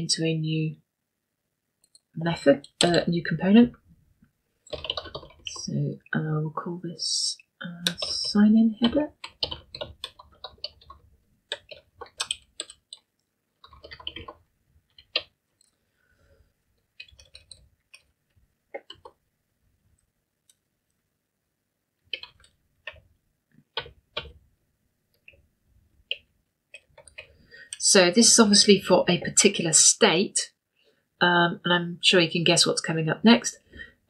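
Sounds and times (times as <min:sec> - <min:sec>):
keyboard typing: 0:04.6 - 0:05.7, 0:07.8 - 0:15.8, 0:16.9 - 0:19.2, 0:22.1 - 0:24.4, 0:26.0 - 0:27.4.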